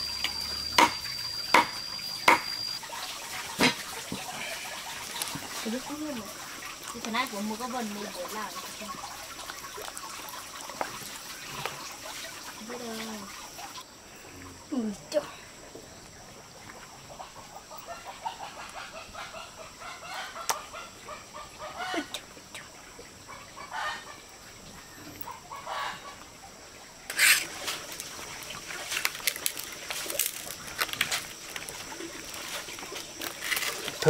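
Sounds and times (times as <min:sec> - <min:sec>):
chickens clucking: 0:16.6 - 0:22.2.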